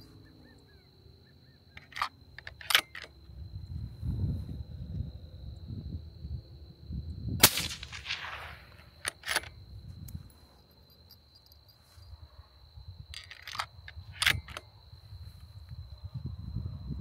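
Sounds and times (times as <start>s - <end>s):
rifle bolt clicks: 1.7s - 3.1s, 7.4s - 9.5s, 13.1s - 14.6s
suppressed rifle shot: 7.4s - 9.4s.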